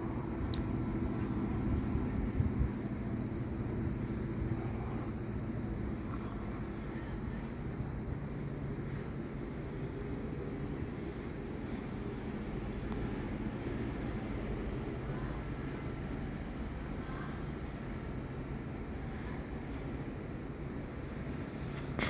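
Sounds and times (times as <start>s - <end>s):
cricket chirping: 0.0s - 22.0s.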